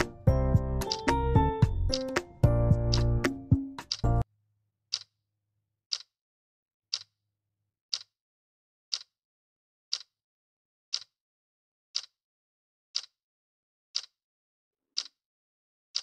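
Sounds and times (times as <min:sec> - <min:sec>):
clock timer ticking: 0:00.0 - 0:04.2, 0:04.9 - 0:05.1, 0:05.9 - 0:06.1, 0:06.9 - 0:07.2, 0:07.9 - 0:08.2, 0:08.9 - 0:09.2, 0:09.9 - 0:10.2, 0:10.9 - 0:11.2, 0:11.9 - 0:12.2, 0:13.0 - 0:13.2, 0:14.0 - 0:14.2, 0:14.9 - 0:15.2.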